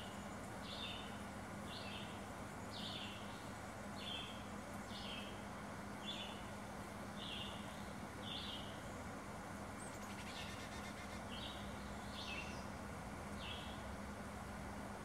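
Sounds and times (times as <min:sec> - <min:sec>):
nestlings high calls: 0:09.8 - 0:12.8, 0:13.4 - 0:13.8.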